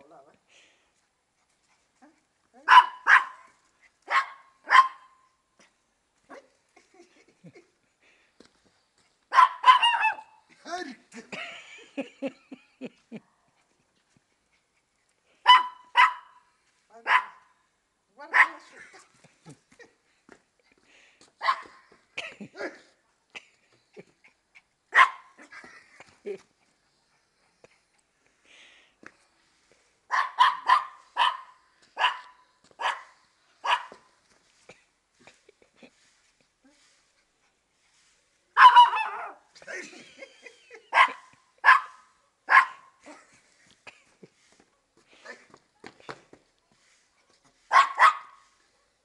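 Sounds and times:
small dog barking: 0:02.6 - 0:03.5, 0:04.1 - 0:05.2, 0:09.3 - 0:10.4, 0:15.4 - 0:16.4, 0:17.0 - 0:17.5, 0:18.3 - 0:18.7, 0:21.4 - 0:21.8, 0:24.9 - 0:25.4, 0:30.1 - 0:34.0, 0:38.6 - 0:39.4, 0:40.9 - 0:43.0, 0:47.7 - 0:48.5.

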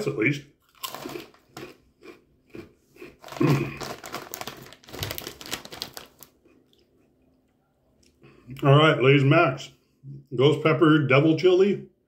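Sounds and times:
plastic chip bag crinkling: 0:00.6 - 0:01.8, 0:03.0 - 0:06.8.

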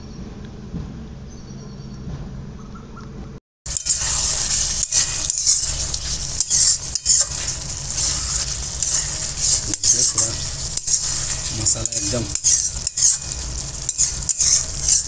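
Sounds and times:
chicken sizzling in a pan: 0:03.7 - 0:15.0
metal spoon scraping a pan: 0:03.7 - 0:15.0.

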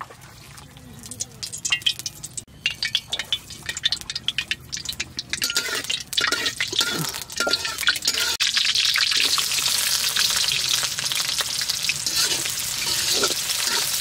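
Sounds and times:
liquid dripping and spattering: 0:00.0 - 0:09.4.

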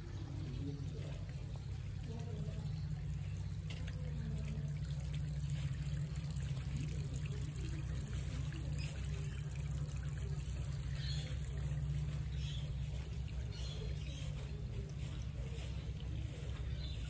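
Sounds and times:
water trickling over concrete: 0:00.0 - 0:17.0.

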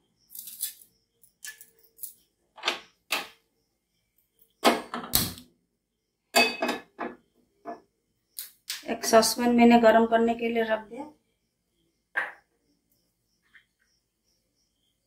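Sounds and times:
cookware knocking and clattering: 0:06.3 - 0:07.8.

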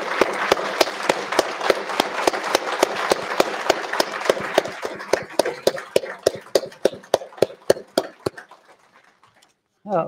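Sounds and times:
audience applauding: 0:00.0 - 0:09.5
close-by claps: 0:00.0 - 0:09.6.

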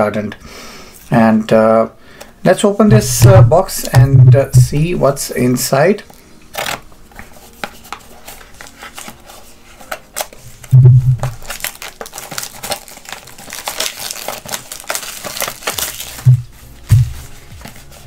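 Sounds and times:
loud low thump: 0:02.9 - 0:04.9, 0:10.8 - 0:11.3
cardboard packaging crinkling: 0:06.5 - 0:18.0.

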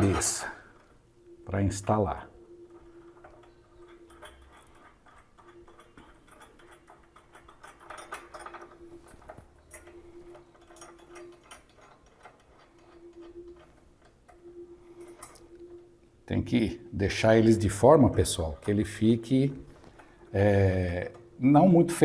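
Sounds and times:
metal rack clicking and tapping: 0:03.2 - 0:14.2.

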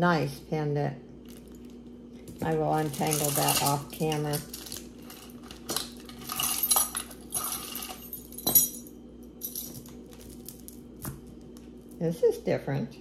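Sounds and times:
jewelry clinking and jingling: 0:02.4 - 0:10.8.

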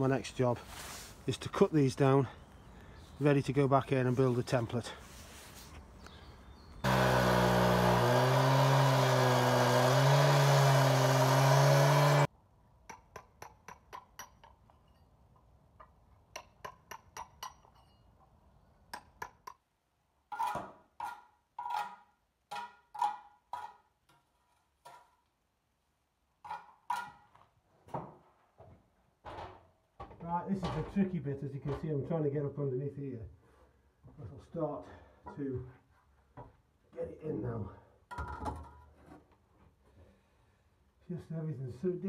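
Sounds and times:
cut-off saw cutting brick: 0:06.8 - 0:12.3
trowel knocking and scraping metal: 0:20.3 - 0:25.2, 0:26.4 - 0:27.3.

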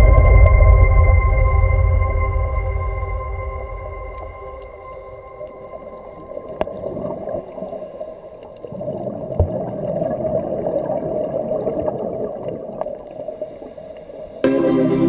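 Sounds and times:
underwater bubbling of exhaled breath: 0:04.1 - 0:14.4.

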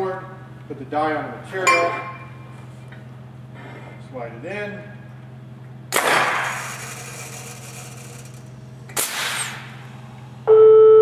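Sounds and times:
low machine hum: 0:00.0 - 0:11.0
press air hiss: 0:06.3 - 0:10.4.

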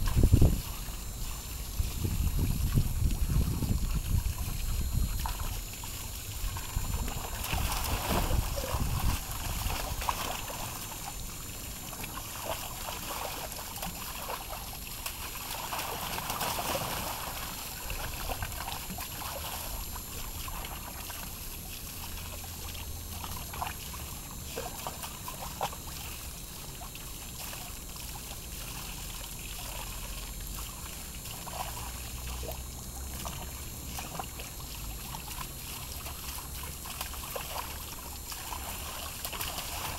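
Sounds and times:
hose stream splashing into water: 0:00.0 - 0:39.9
dog splashing in water: 0:04.0 - 0:10.6, 0:35.0 - 0:39.9.

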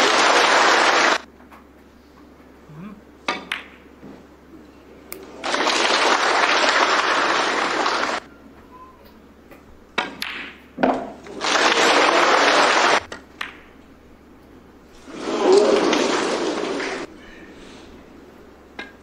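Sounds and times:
audience applauding: 0:00.0 - 0:01.3, 0:05.2 - 0:08.3, 0:11.3 - 0:13.1, 0:15.1 - 0:17.1
snooker balls clicking: 0:03.3 - 0:03.9.

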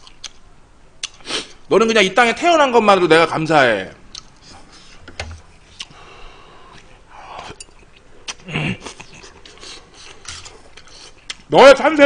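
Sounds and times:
slurping and chewing noodles: 0:08.2 - 0:11.4.

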